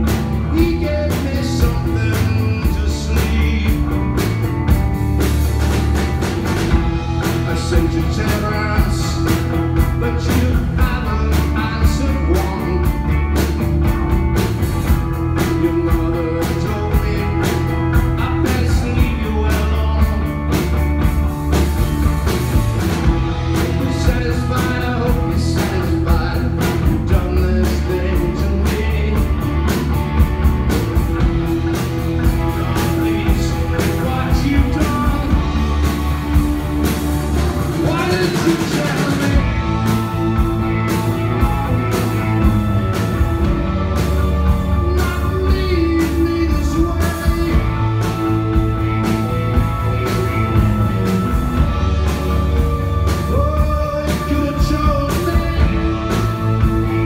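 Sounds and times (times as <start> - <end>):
lead vocal singing: 0.0 - 4.1, 6.8 - 13.3, 15.2 - 20.5, 23.0 - 29.6, 31.2 - 36.4, 37.4 - 41.2, 42.4 - 57.0
drum kit: 0.0 - 57.0
electric bass: 0.0 - 57.0
electric guitar: 0.0 - 57.0.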